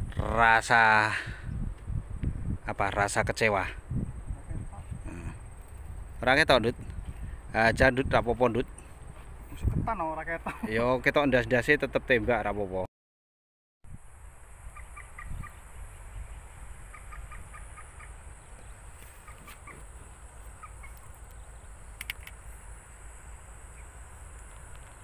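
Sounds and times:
wind rumbling on microphone: 0.0s - 10.2s, 13.9s - 22.8s
bird chirping: 14.7s - 22.3s, 23.6s - 25.0s.

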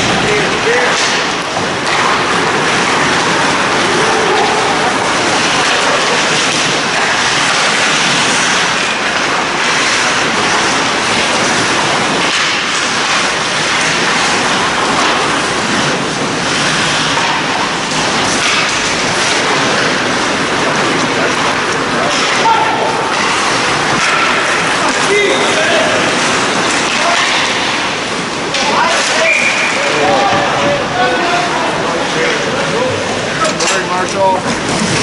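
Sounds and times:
hockey sticks and puck clicking: 0.0s - 30.7s
skates cutting ice: 0.0s - 35.0s.

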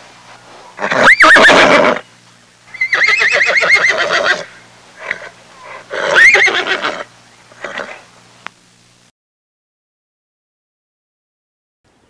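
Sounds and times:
horse whinnying: 0.8s - 2.0s, 2.7s - 8.0s.

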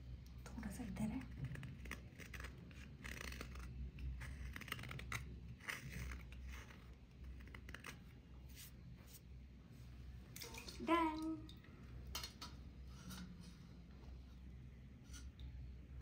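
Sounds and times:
knife scraping dried crust: 1.2s - 8.7s.

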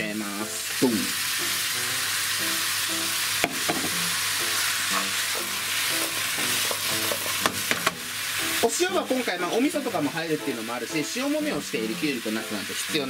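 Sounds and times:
vegetables sizzling in frying pan: 0.0s - 13.0s
sharp knock: 3.4s - 4.0s.

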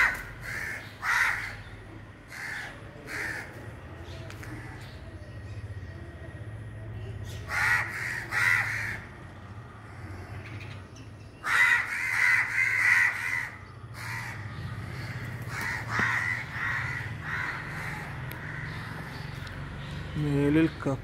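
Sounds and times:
crows cawing: 0.0s - 3.8s, 7.5s - 9.3s, 11.4s - 19.4s.

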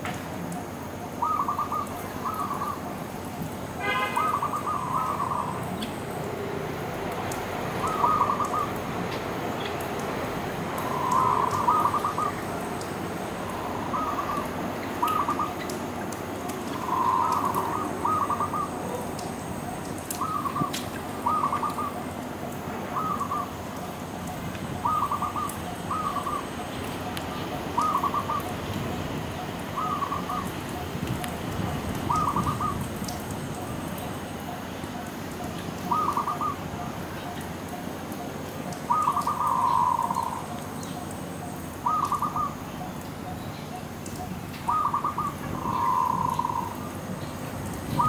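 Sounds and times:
steady background hiss: 0.0s - 48.0s
dove cooing: 1.2s - 2.8s, 7.8s - 8.8s, 10.8s - 12.5s, 13.7s - 15.7s, 16.7s - 19.0s, 20.2s - 22.0s, 23.0s - 23.5s, 24.8s - 26.5s, 29.8s - 30.5s, 32.1s - 32.8s, 35.9s - 36.6s, 38.9s - 40.4s, 41.8s - 42.6s, 44.7s - 46.9s.

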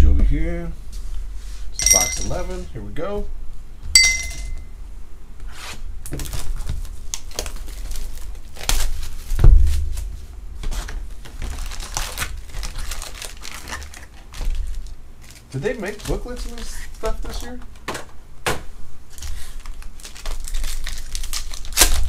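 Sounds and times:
plastic and foil crinkling: 6.1s - 17.6s, 19.1s - 22.0s.

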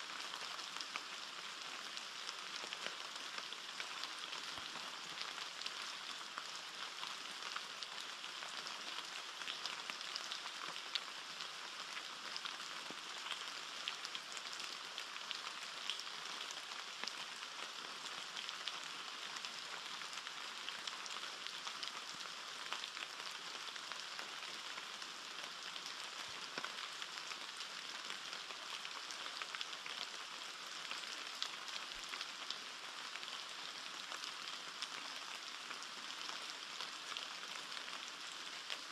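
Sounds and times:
rain pattering on foliage: 0.0s - 38.9s.

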